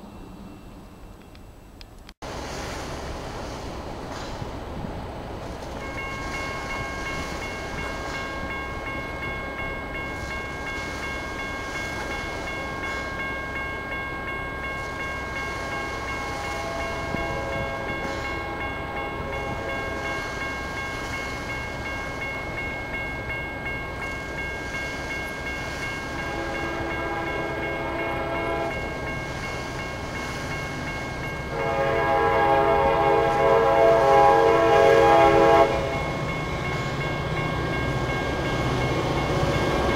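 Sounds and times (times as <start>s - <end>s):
railroad crossing bell ringing: 5.6s - 39.9s
train horn: 15.8s - 20.4s, 26.1s - 28.9s, 31.4s - 36.1s.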